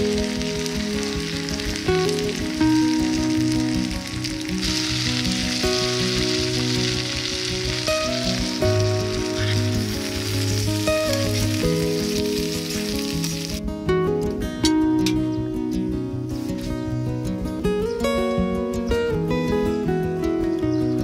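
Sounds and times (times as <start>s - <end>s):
food sizzling in a hot pan: 0.0s - 13.6s
light background music: 0.0s - 21.0s.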